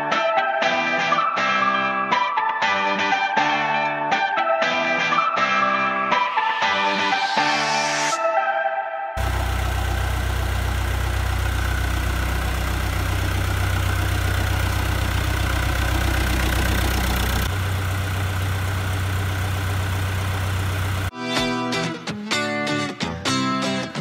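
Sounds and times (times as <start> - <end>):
diesel tractor engine idling: 9.2 - 21.1.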